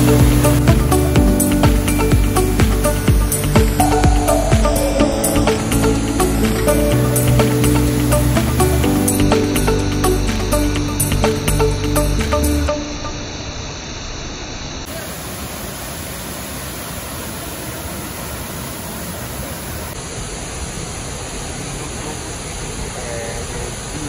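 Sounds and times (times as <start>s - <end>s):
waterfall roaring: 14.9s - 24.0s.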